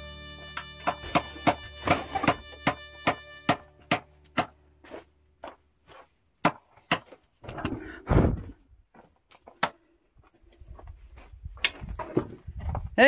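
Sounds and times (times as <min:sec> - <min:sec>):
hammer blows on wood: 0:00.2 - 0:04.6.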